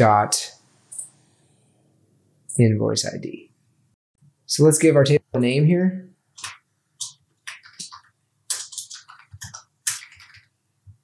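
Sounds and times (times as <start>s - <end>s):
keyboard typing: 6.4s - 10.6s.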